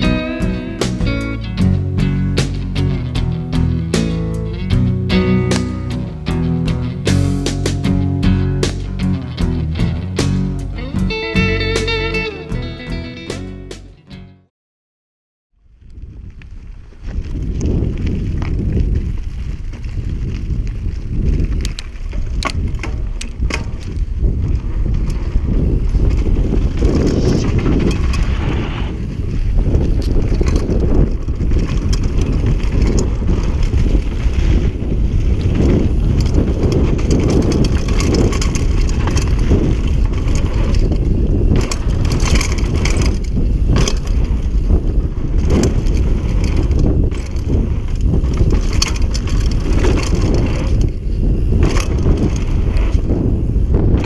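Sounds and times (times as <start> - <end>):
bike rattling over bumps: 0.0 - 12.2, 15.7 - 54.0
wind buffeting microphone: 15.6 - 54.0
tyres crunching on gravel: 16.5 - 54.0.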